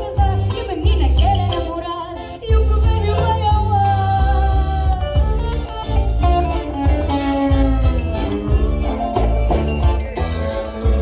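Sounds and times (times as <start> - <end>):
live band playing: 0.0 - 11.0
heavy bass notes: 2.5 - 11.0.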